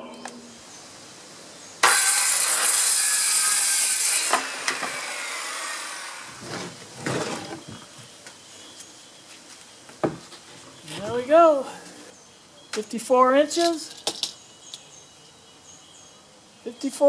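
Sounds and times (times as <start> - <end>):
circular saw cutting board: 1.8 - 7.7.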